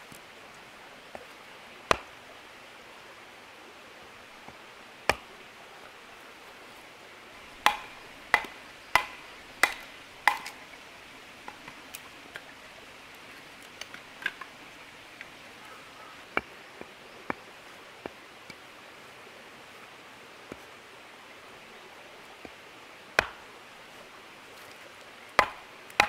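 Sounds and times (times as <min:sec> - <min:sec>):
hatchet splitting log: 0:01.9 - 0:02.2, 0:05.1 - 0:05.3, 0:07.5 - 0:10.6, 0:23.2 - 0:23.4, 0:25.4 - 0:26.0.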